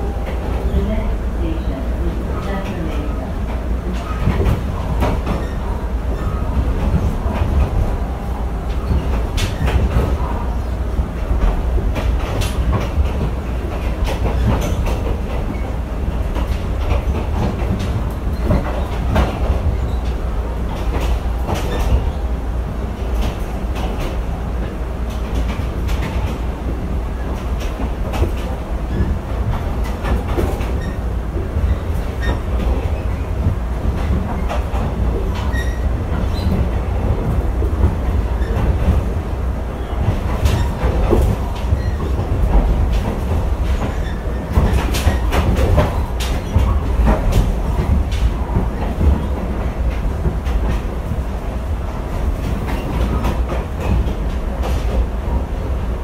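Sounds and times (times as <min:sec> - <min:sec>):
train coach low rumble: 0:00.0 - 0:56.0
wheel clacks and knocks: 0:39.9 - 0:51.2.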